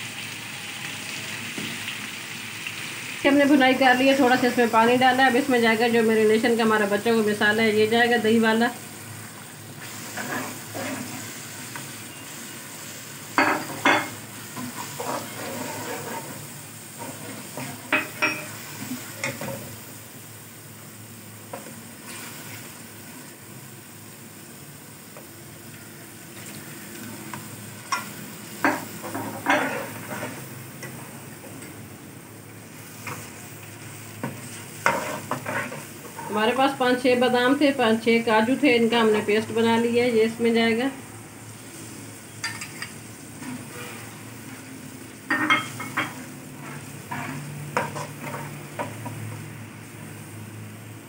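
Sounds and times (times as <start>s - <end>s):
food sizzling in a wok: 0.0s - 51.0s
ladle stirring and scraping: 14.6s - 16.4s, 34.5s - 36.2s.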